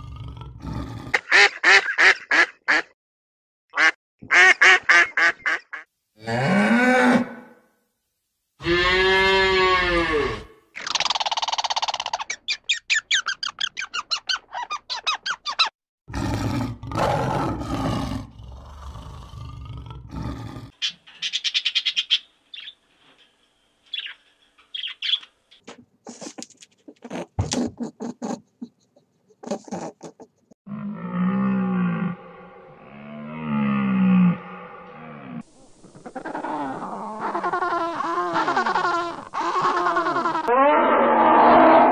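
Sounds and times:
animal growl: 0.0s - 1.2s, 16.1s - 20.8s
cow mooing: 8.6s - 10.5s
high squeaks and chirps: 10.8s - 15.8s.

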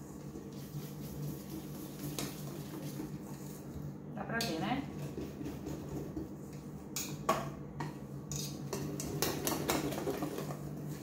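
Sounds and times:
whisk clinking against metal bowl: 8.3s - 10.6s.

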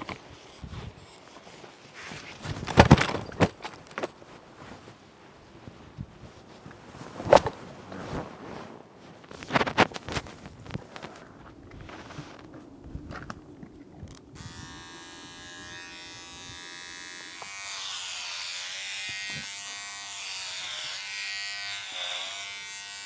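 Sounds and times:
clippers cutting hair hiss: 14.4s - 23.0s
hair clippers buzzing: 14.4s - 23.0s.

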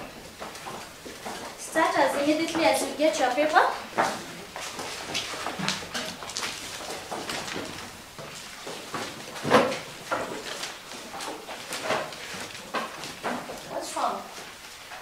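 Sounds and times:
knocks and scrapes on desks: 3.8s - 13.8s
paper rustling: 4.0s - 13.8s.

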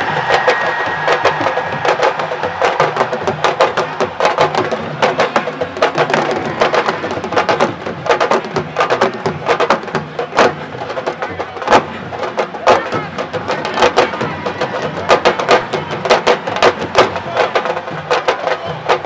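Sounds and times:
drum ensemble playing fast rhythms: 0.0s - 19.0s.

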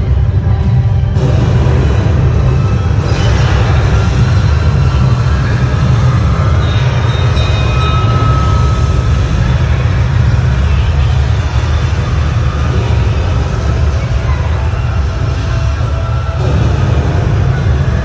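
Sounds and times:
deep earthquake rumble: 0.0s - 18.0s.

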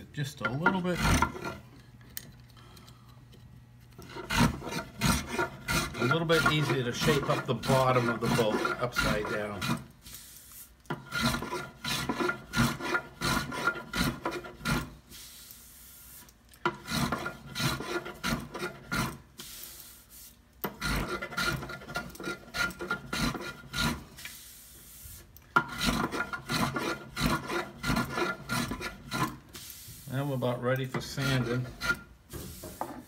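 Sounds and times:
hand plane shaving wood: 0.7s - 1.6s, 4.0s - 9.9s, 11.0s - 14.9s, 16.7s - 19.2s, 20.7s - 24.1s, 25.6s - 29.4s, 31.0s - 32.1s.

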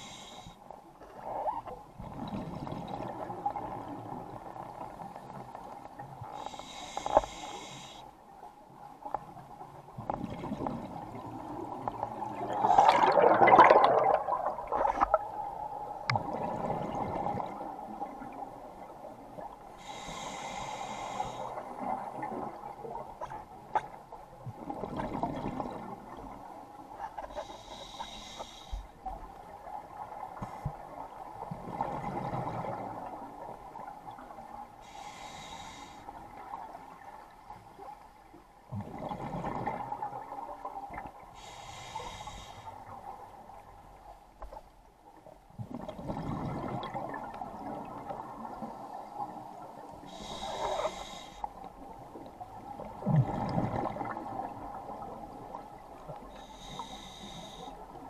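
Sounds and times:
regulator inhale hiss: 0.0s - 0.7s, 6.3s - 8.2s, 19.8s - 21.7s, 27.3s - 29.0s, 34.8s - 36.3s, 41.4s - 42.9s, 50.0s - 51.6s, 56.3s - 57.9s
exhaled bubbles gurgling: 1.2s - 6.2s, 9.9s - 19.5s, 24.5s - 26.6s, 30.8s - 34.4s, 38.7s - 41.2s, 45.5s - 51.1s, 51.9s - 57.0s.

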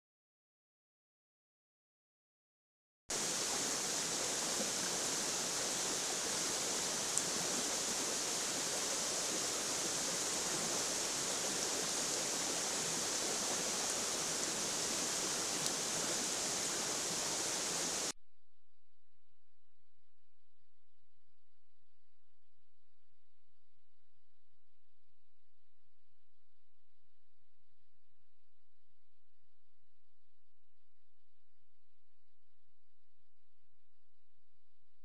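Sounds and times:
microphone hiss: 3.1s - 18.1s
faint tick: 15.6s - 15.8s.

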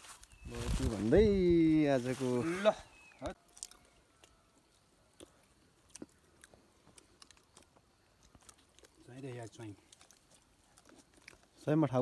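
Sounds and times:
person chewing food: 3.4s - 9.0s, 9.8s - 11.6s.

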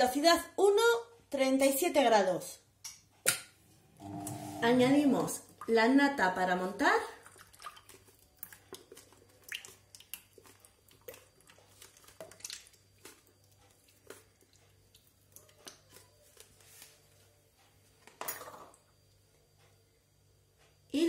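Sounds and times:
faint drips: 6.8s - 16.1s.

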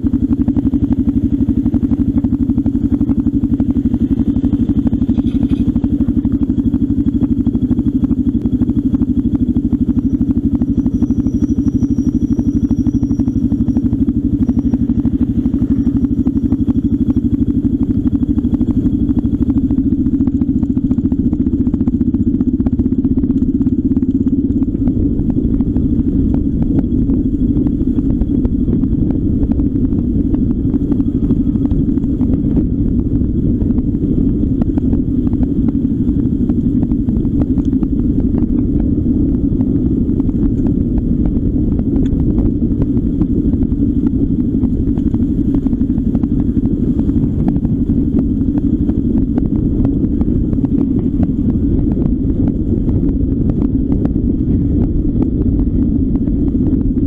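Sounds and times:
vehicle engine drone: 0.0s - 57.0s
rattling on gravel track: 0.6s - 22.8s.

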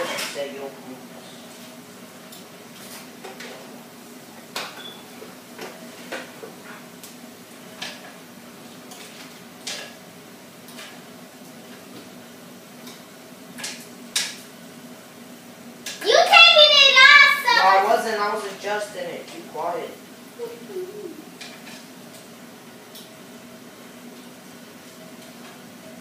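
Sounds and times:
faint steady hum: 12.4s - 26.0s.

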